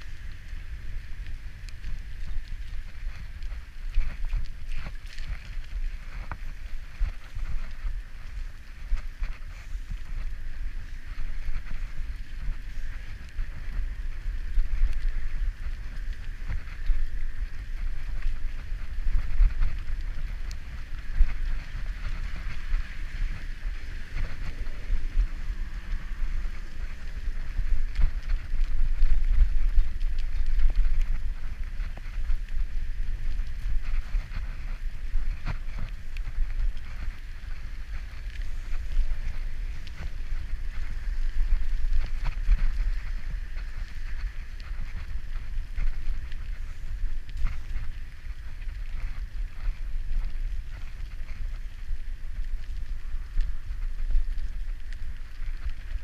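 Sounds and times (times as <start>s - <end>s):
tyre hiss on wet asphalt: 0.0s - 29.4s
bicycle rattles: 0.0s - 56.0s
wind rumble on microphone: 0.0s - 56.0s.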